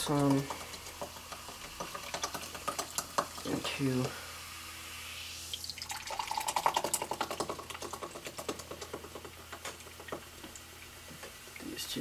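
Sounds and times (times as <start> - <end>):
fizzy drink glugging and fizzing: 5.5 - 10.6.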